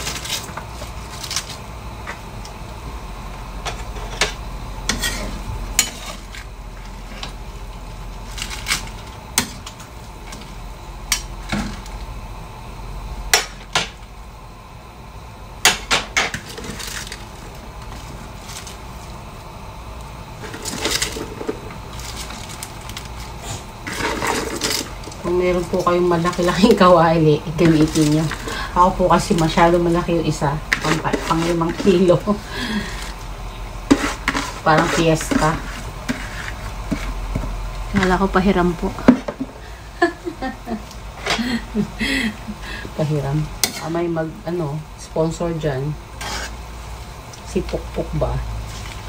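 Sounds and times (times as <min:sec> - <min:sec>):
steady low hum: 0:00.0 - 0:49.0
metal spatula scraping a wok: 0:04.9 - 0:07.4, 0:23.4 - 0:25.0, 0:30.7 - 0:33.2, 0:33.9 - 0:37.1, 0:43.6 - 0:44.0, 0:46.2 - 0:46.6.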